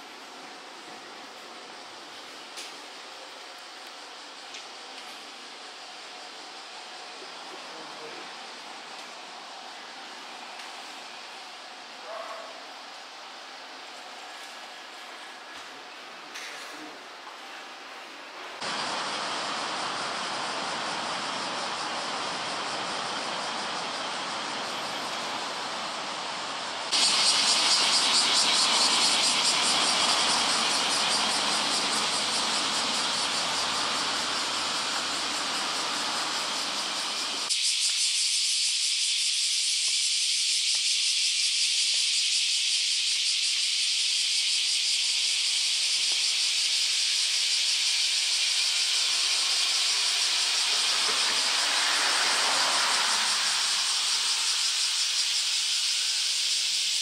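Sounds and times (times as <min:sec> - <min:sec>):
cicada chorus: 0:00.0 - 0:57.0
street and traffic noise: 0:00.3 - 0:37.6, 0:48.6 - 0:55.8
vehicle passing: 0:50.5 - 0:55.0.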